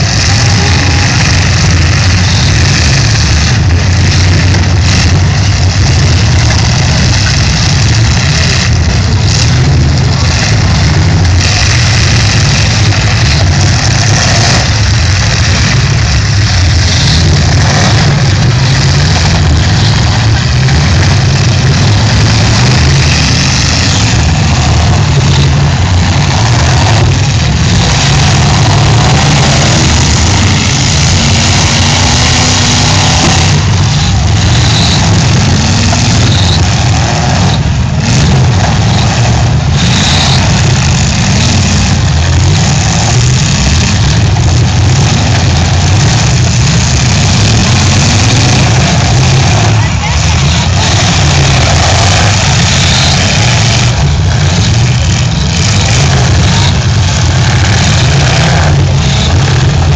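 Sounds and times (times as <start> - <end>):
car engines revving loudly: 0.0 - 59.9.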